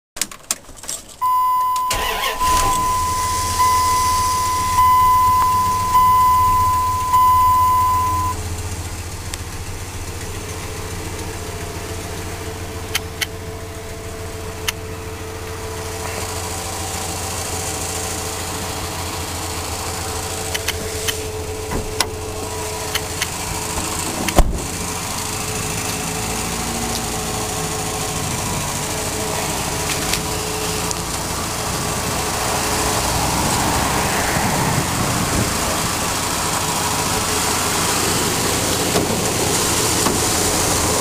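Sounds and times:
engine cranking and idling: 0:00.2 - 0:41.0
high dashboard warning tone: 0:01.2 - 0:08.6.

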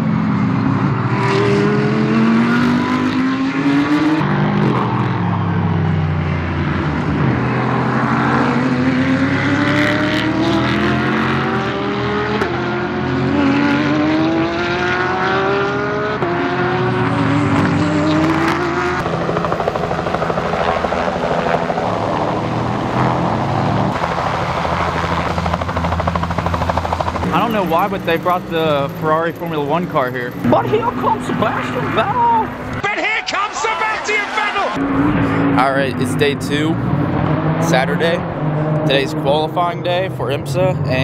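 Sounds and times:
race car accelerating through gears: 0:00.0 - 0:32.8, 0:34.2 - 0:41.0
helicopter rotor chopping: 0:17.5 - 0:36.9.

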